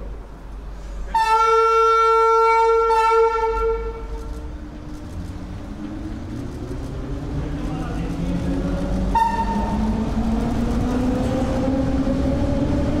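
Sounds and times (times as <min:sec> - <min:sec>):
train rumbling: 0:00.0 - 0:13.0
electric train horn: 0:01.1 - 0:04.4, 0:09.1 - 0:09.9.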